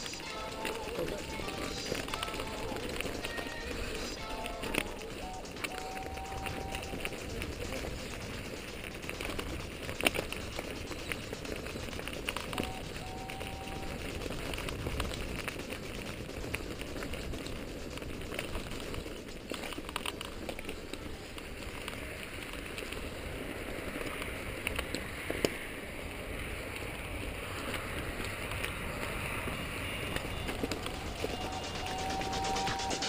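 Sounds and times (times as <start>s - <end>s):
bike frame rattling: 0.0s - 25.5s
bike tyres crunching on gravel: 0.0s - 32.9s.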